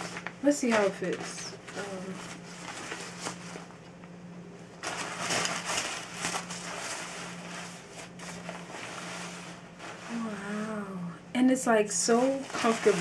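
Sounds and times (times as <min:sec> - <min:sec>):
shower cap rustling and crinkling: 0:00.0 - 0:03.8, 0:04.8 - 0:10.4, 0:12.1 - 0:13.0.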